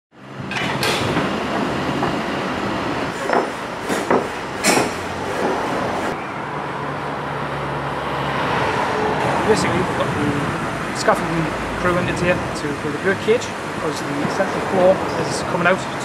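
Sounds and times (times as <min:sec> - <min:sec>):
metal scrapes and clanks: 0:00.5 - 0:01.3.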